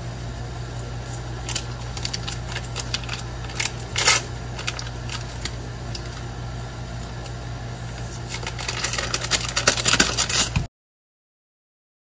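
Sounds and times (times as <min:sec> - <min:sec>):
steady low hum: 0:00.0 - 0:10.7
paper wrapper crinkling: 0:00.8 - 0:06.3, 0:07.9 - 0:10.7.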